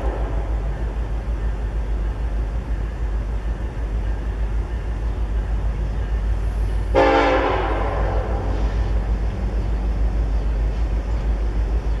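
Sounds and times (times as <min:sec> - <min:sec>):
diesel locomotive rumble: 0:00.0 - 0:12.0
locomotive air horn: 0:06.9 - 0:08.5.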